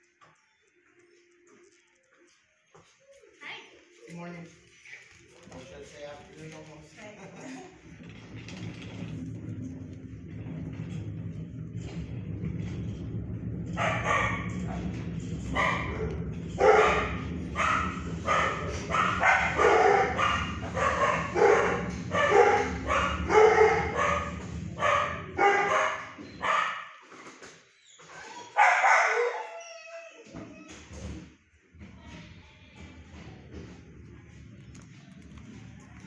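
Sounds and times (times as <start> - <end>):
dog barking: 13.7 - 14.9, 15.5 - 27.0, 28.5 - 29.6.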